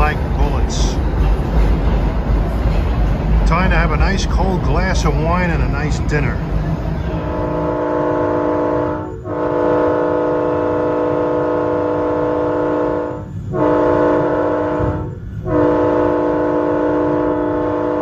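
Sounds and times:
low rumble of moving train: 0.0 - 18.0
train chime air horn blasts: 7.2 - 18.0.

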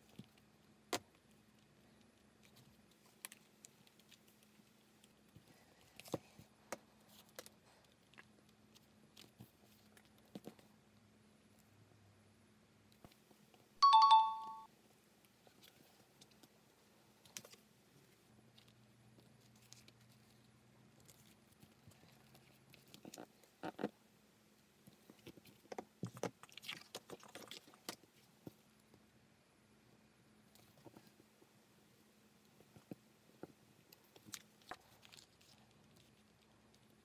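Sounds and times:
pen and paper handling sounds: 0.0 - 10.7, 18.5 - 23.9
bright chime: 13.8 - 14.7.

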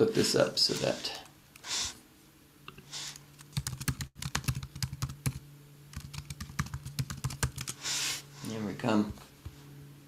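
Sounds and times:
typing on computer keyboard: 3.5 - 7.8.

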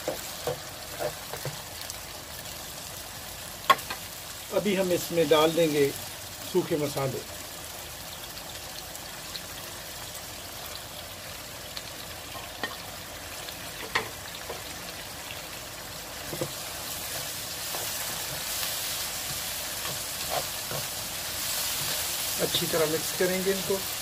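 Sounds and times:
food sizzling in a frying pan: 0.0 - 24.0
spatula stirring: 16.2 - 24.0.

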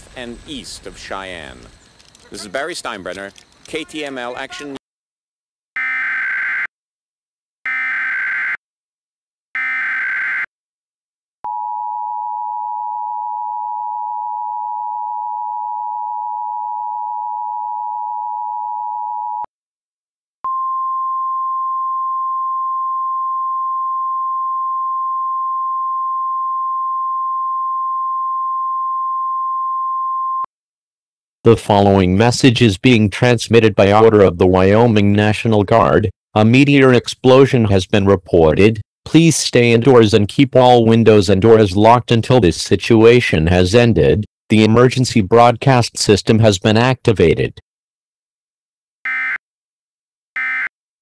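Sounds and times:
single steady tone: 11.4 - 19.5, 20.4 - 30.5.

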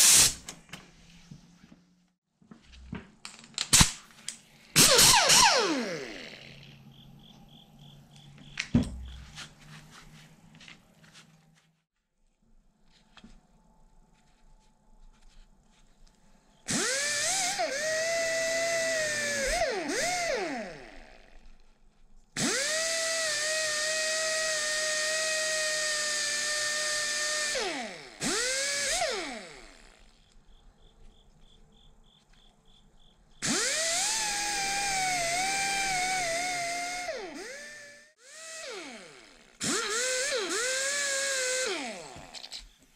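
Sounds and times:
pneumatic die grinder whine: 4.8 - 6.8, 16.7 - 21.5, 22.4 - 30.3, 33.4 - 42.7.

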